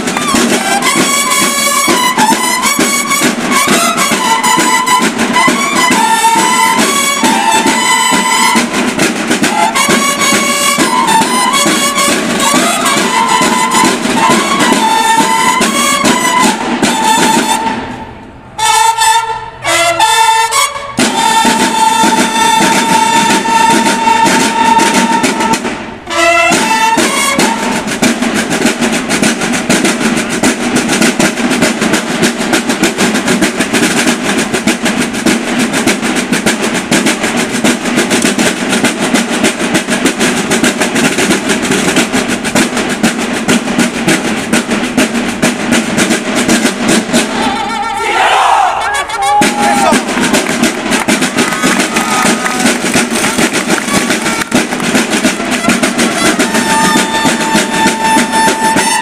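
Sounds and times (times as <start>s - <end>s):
snare drums rolling: 0.0s - 59.0s
bugles playing phrases: 0.1s - 29.4s, 47.0s - 59.0s.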